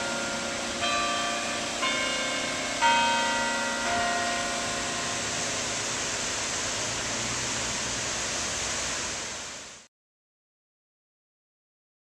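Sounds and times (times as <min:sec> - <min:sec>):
carillon bells: 0:00.0 - 0:06.2
waterfall rushing: 0:00.0 - 0:09.9.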